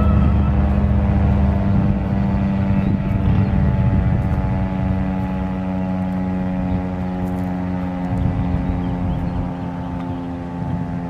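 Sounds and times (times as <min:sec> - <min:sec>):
two-tone siren: 0:00.0 - 0:07.4.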